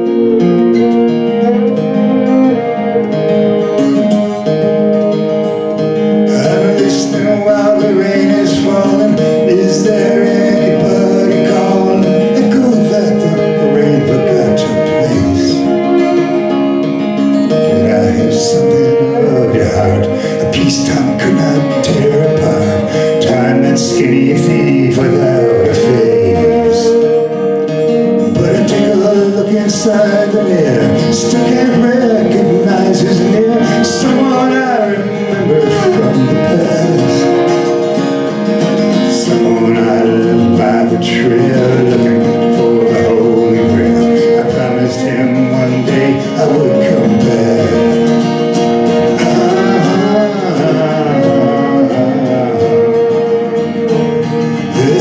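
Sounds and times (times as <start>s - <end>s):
acoustic guitar strumming: 0.0s - 55.0s
violin melody: 0.0s - 55.0s.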